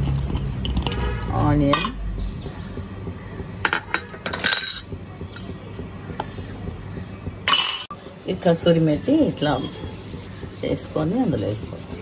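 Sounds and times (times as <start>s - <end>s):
kitchenware knocks and clinks: 3.6s - 5.5s, 7.4s - 7.9s
spatula stirring in plastic bowl: 7.9s - 12.0s.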